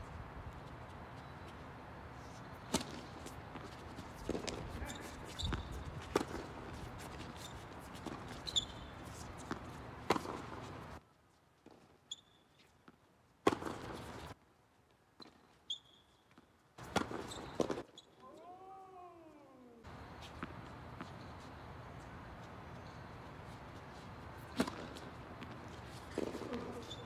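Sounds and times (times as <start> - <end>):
shoe squeaks on court: 2.4 - 10.8, 12.0 - 12.8, 15.2 - 18.4, 20.0 - 27.0.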